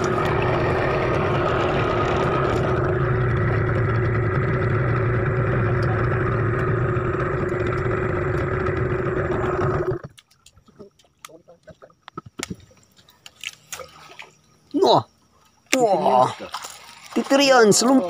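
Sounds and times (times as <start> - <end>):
outboard motor running: 0.0 - 11.0, 15.8 - 18.0.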